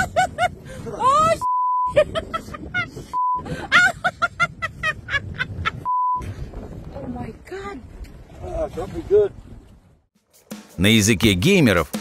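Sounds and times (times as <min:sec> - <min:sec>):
censor beep: 0:01.4 - 0:01.9, 0:03.2 - 0:03.4, 0:05.9 - 0:06.2.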